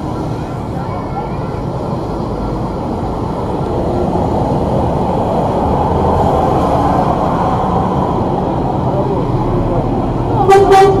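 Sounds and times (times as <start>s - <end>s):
bus engine rumble: 0.0s - 11.0s.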